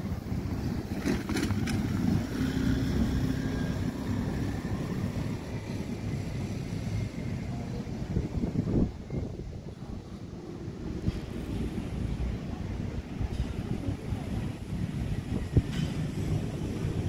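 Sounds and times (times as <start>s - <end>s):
passing motor vehicle: 0.0s - 17.0s
wind on microphone: 7.5s - 17.0s.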